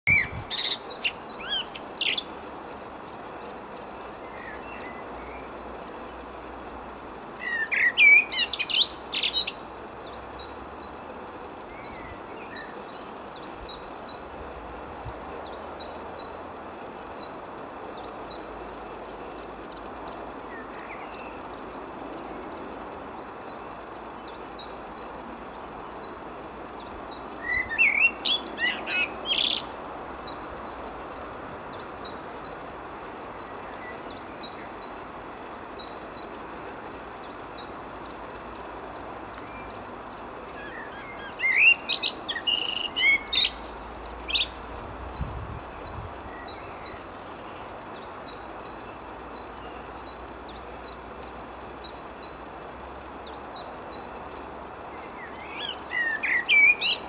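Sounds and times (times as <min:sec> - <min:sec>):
wind noise: 0:00.1 - 0:00.7, 0:44.2 - 0:46.9
blackbird singing: 0:00.1 - 0:02.5, 0:04.1 - 0:18.4, 0:23.5 - 0:38.0, 0:40.5 - 0:54.0, 0:54.9 - 0:57.0.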